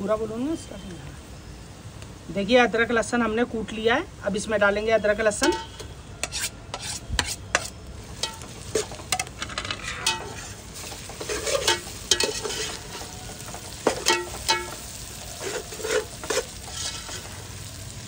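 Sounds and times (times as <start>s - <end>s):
onions and spices sizzling in oil: 0.0s - 18.0s
spoon scraping and clinking on pot: 5.4s - 13.1s, 13.8s - 17.3s.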